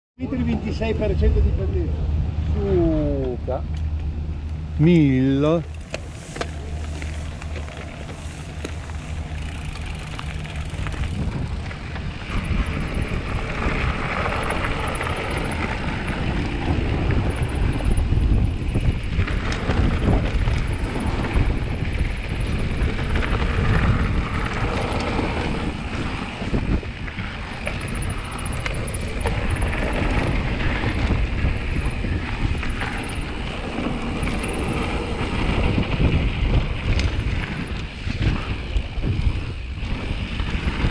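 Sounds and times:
wind buffeting microphone: 0.3s - 40.9s
bike rattling over bumps: 3.1s - 40.9s
tyres crunching over stones: 5.7s - 12.1s.

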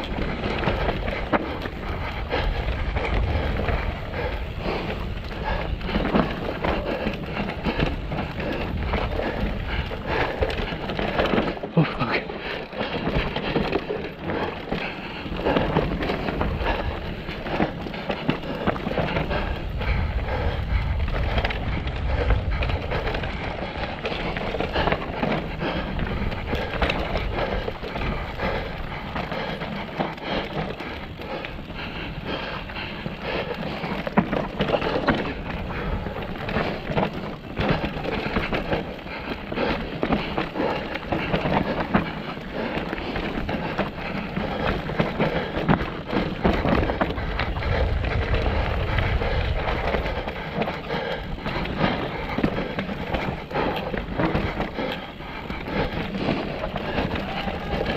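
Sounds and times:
bike rattling: 0.0s - 57.9s
low rumble: 0.6s - 7.0s, 18.6s - 24.9s, 46.5s - 51.9s.

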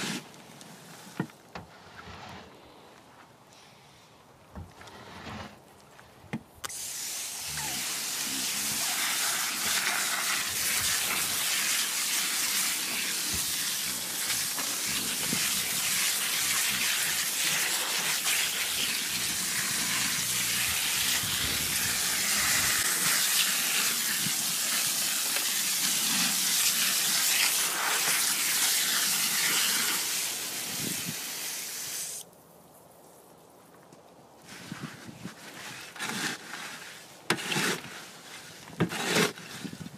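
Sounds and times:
garden hose spraying water: 0.0s - 1.2s, 6.6s - 32.3s.

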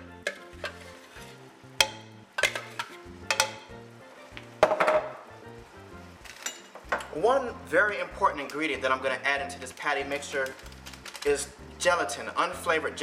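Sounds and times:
background music: 0.0s - 13.0s
plastic jar knocking on metal pot: 1.8s - 3.7s, 4.6s - 5.2s.

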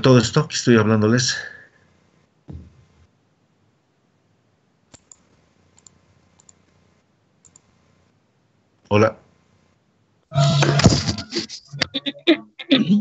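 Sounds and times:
computer mouse clicks: 4.9s - 6.8s, 7.4s - 7.8s.

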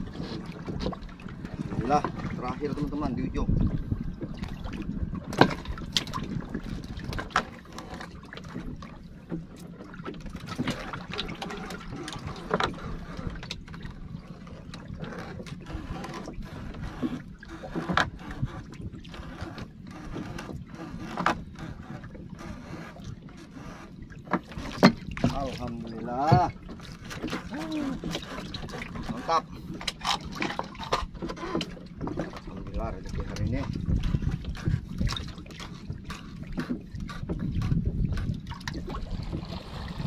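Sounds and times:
water washing against hull: 0.0s - 40.0s
clicks and knocks of fishing gear: 24.2s - 39.0s.

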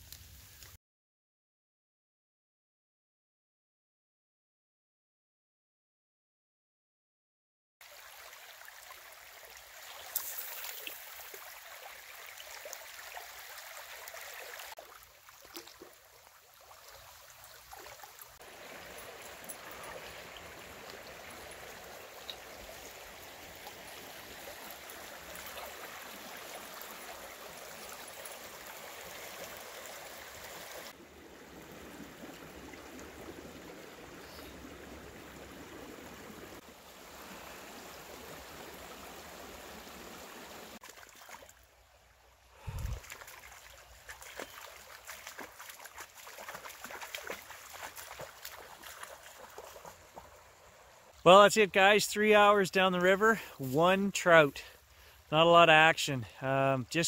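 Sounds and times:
river water rushing: 7.8s - 41.4s.

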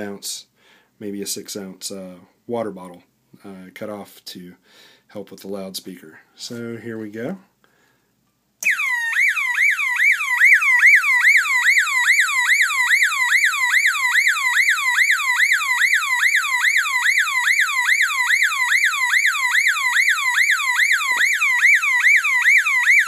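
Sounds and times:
warbling electronic alarm tone: 8.6s - 23.0s.

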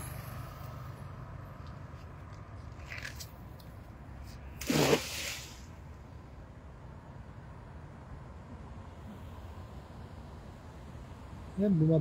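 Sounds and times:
net splashing into water: 4.6s - 5.6s.

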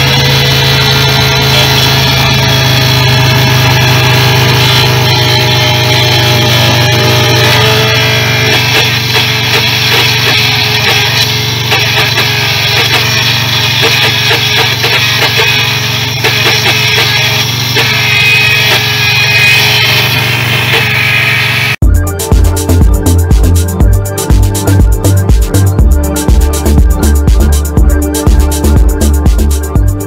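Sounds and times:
alternator whine: 0.0s - 30.0s
car engine running: 0.0s - 30.0s.

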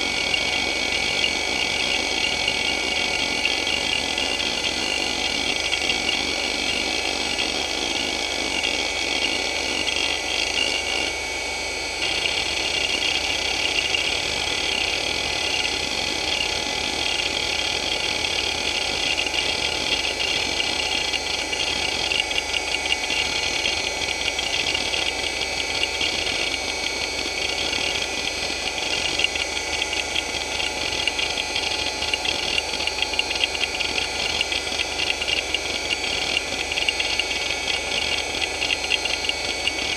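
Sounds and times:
hard drive platters whirring: 0.0s - 39.9s
hard drive head chattering ticks: 12.0s - 26.6s, 27.5s - 39.9s.

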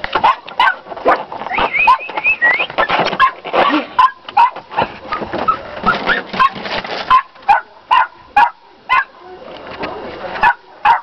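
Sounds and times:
puppies yipping and whining: 1.5s - 4.6s, 5.2s - 7.3s.

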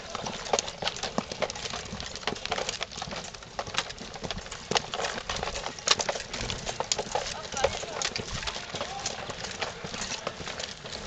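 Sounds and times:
boot footsteps on asphalt: 0.0s - 11.0s.

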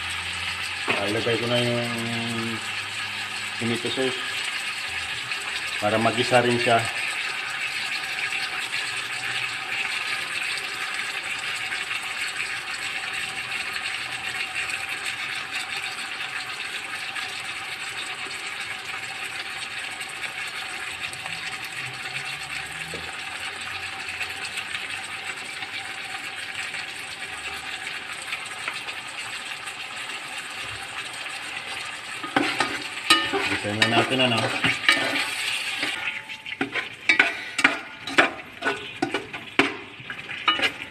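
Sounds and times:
pork sizzling in a pot: 0.0s - 40.9s.

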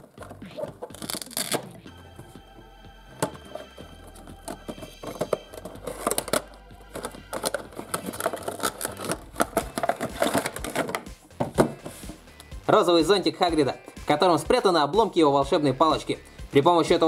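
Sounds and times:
cardboard box rustling and scraping: 4.5s - 12.2s.

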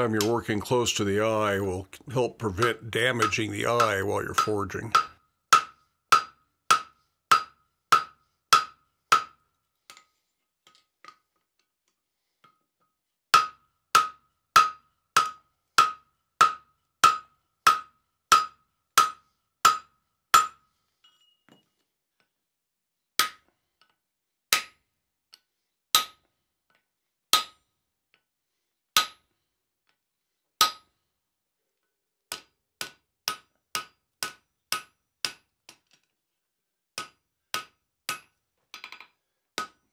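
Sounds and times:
hammer striking steel on anvil: 2.6s - 9.4s, 13.3s - 20.6s.

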